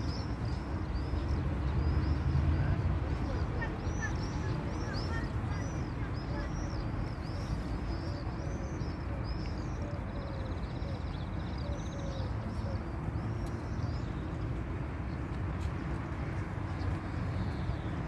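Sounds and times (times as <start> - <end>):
songbirds chirping: 0.0 - 18.0.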